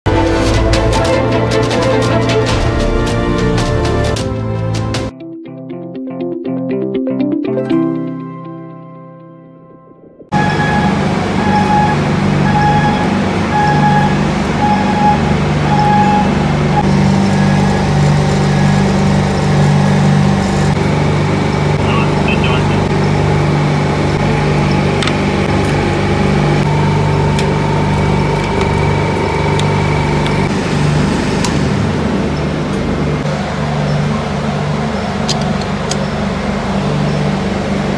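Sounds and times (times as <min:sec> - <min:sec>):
refrigeration unit hum: 0:10.3 - 0:37.9.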